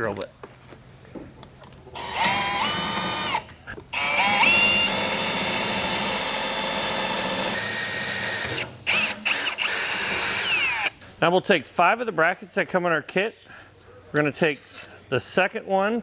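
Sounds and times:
cordless drill whining: 0:02.0 - 0:10.9.

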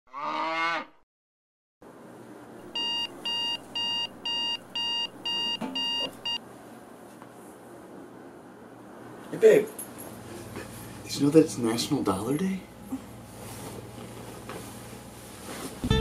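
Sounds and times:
phone alarm beeping: 0:02.7 - 0:06.4.

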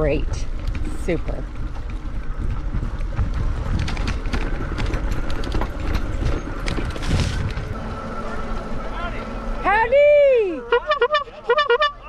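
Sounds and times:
bicycle rattling and knocking: 0:00.0 - 0:07.7
wind rumble on microphone: 0:00.0 - 0:08.9.

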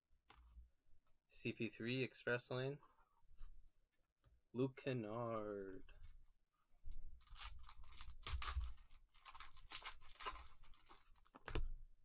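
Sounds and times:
card pack wrapper tearing: 0:07.2 - 0:11.6.

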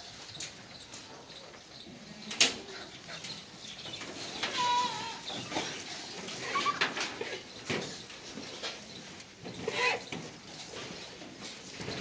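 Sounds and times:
goats rustling at fodder rack: 0:00.0 - 0:12.0
goat bleating: 0:04.4 - 0:05.4.

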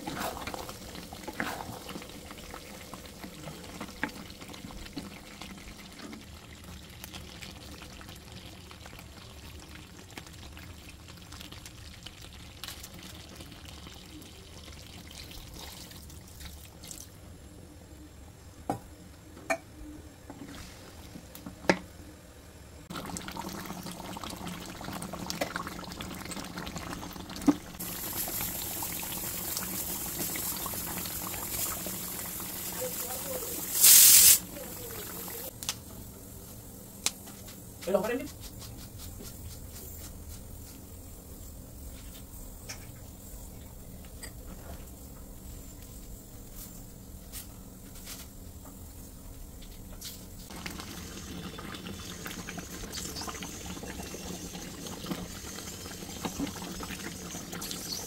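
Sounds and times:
curry bubbling and sizzling in a pan: 0:00.0 - 0:16.8, 0:22.9 - 0:35.6, 0:46.6 - 0:58.0.

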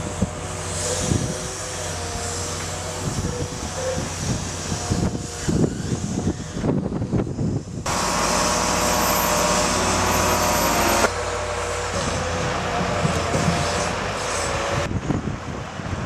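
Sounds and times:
loading crane engine running: 0:00.0 - 0:16.0
pile-driving rig engine: 0:07.8 - 0:15.1.

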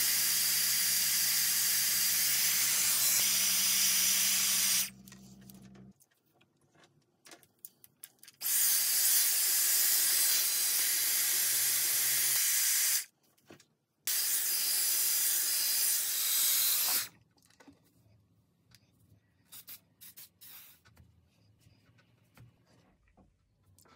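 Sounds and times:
hair styler blowing air: 0:00.0 - 0:05.0, 0:08.4 - 0:13.1, 0:14.1 - 0:17.1.

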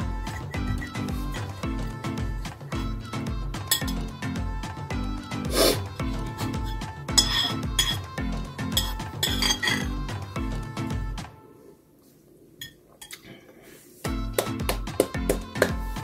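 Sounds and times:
background music with low beat: 0:00.0 - 0:11.4, 0:14.0 - 0:16.0
spoon scraping ceramic bowl: 0:03.7 - 0:04.1, 0:06.4 - 0:08.1, 0:08.7 - 0:10.0.

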